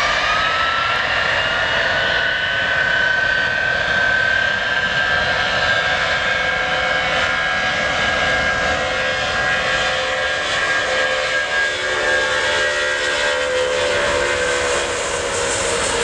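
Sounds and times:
jet engines running: 0.0s - 16.0s.

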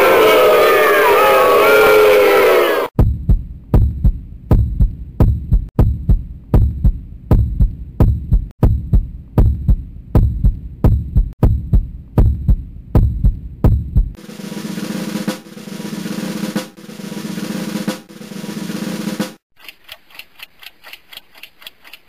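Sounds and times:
crowd chanting: 0.0s - 2.9s
heartbeat thumps: 3.0s - 14.2s.

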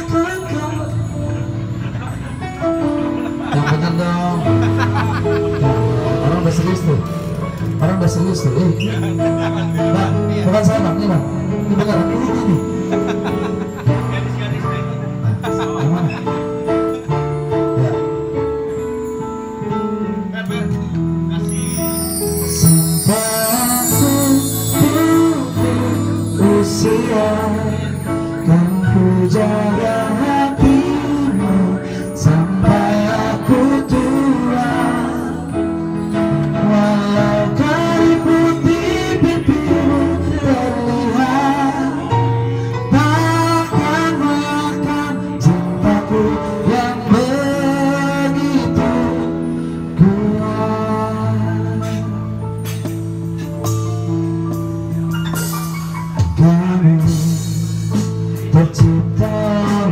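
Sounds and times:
keyboard chords: 0.0s - 59.9s
mark tree chimes shimmering run: 21.3s - 37.5s
person singing: 21.4s - 52.4s, 56.2s - 59.9s.

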